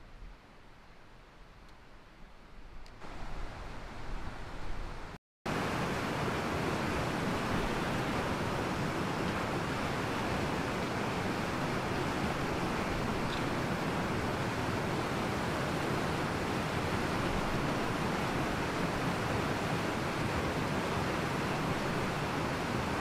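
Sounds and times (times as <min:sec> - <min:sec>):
whitewater rushing over rocks: 0:05.5 - 0:23.0.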